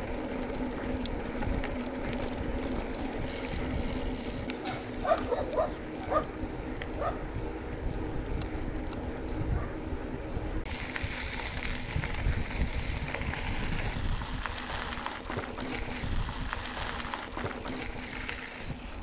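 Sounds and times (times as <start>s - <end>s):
bike clicks and rattles: 0.0s - 19.0s
bike tyres rolling: 0.0s - 19.0s
wind on microphone: 3.1s - 10.0s, 11.0s - 19.0s.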